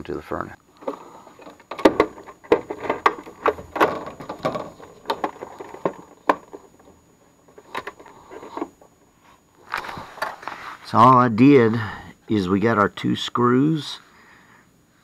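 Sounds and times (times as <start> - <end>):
plastic pump housing knocking and scraping: 0.8 - 8.9.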